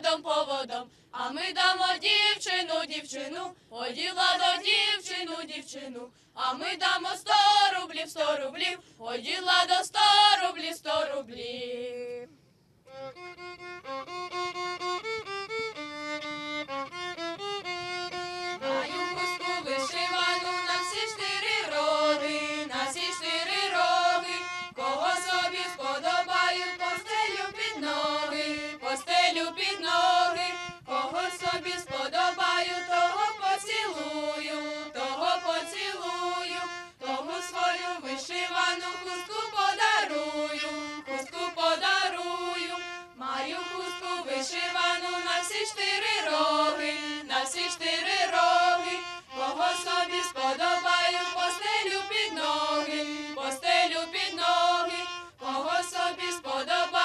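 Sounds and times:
children's violins playing: 12.8 - 57.0.

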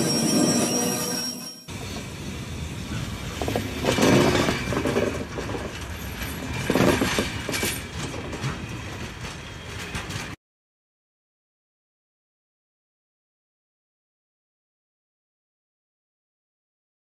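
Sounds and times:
train wheels on rails: 0.0 - 10.4.

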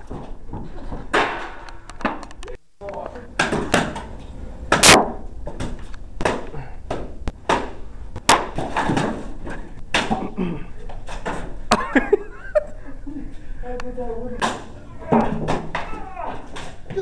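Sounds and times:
people shouting: 14.8 - 17.0.

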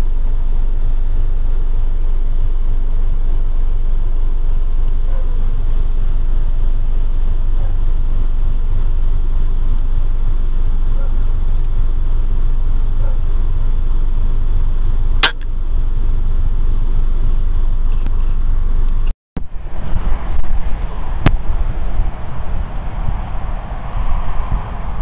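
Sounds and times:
steady low rumble: 0.0 - 25.0
air rifle shot crack: 15.2 - 15.5.

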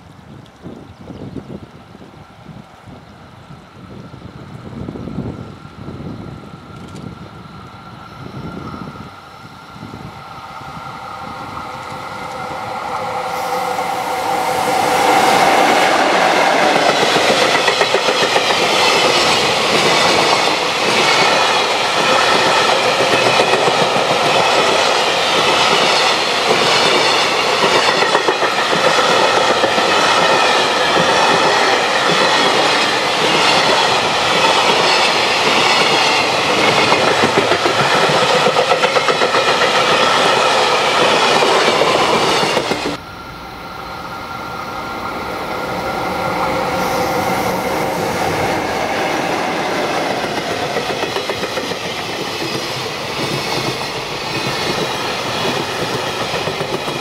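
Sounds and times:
freight train wheels rumbling: 0.0 - 57.0
clickety-clack over rail joints: 16.5 - 43.0, 49.7 - 57.0.

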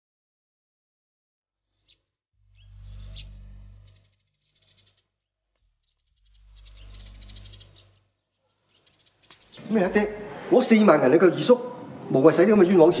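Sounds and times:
birds chirping and trilling: 1.6 - 5.1, 6.2 - 9.9, 12.6 - 13.0.

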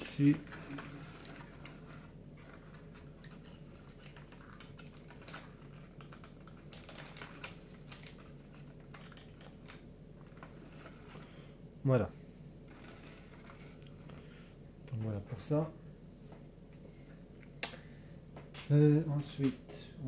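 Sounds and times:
puzzle pieces clicking and scraping: 0.5 - 11.3, 12.7 - 14.0.

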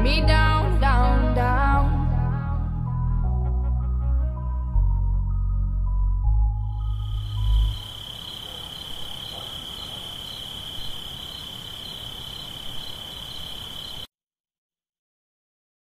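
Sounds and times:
music: 0.0 - 7.8
high insect trill: 6.7 - 14.1.

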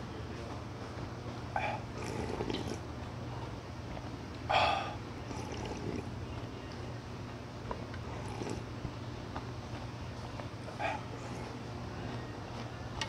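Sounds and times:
steady low hum: 0.0 - 13.0
person slurping soup: 2.0 - 2.8, 5.3 - 6.1, 8.1 - 8.7.

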